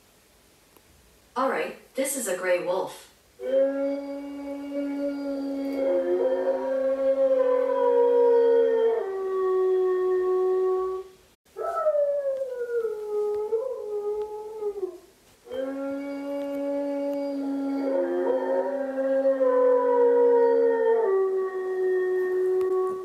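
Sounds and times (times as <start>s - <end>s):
wolves howling: 3.4s - 23.0s.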